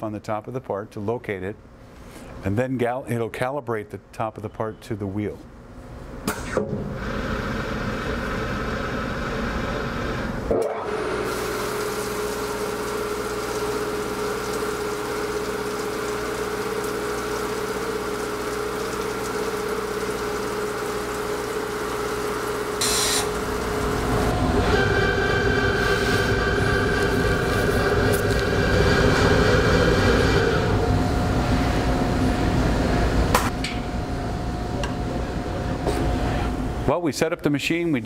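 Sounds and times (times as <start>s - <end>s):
grinding wheel and coolant spray: 7.0s - 32.6s
steady hum: 8.9s - 38.0s
high whine: 22.8s - 36.9s.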